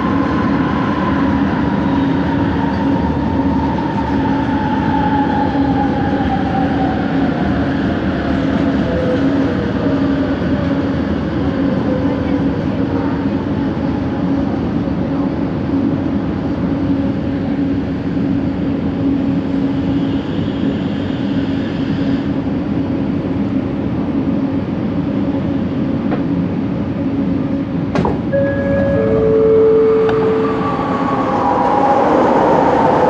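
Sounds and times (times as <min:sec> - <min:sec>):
train motor hum: 0:28.0 - 0:33.0
door chime: 0:28.3 - 0:31.4.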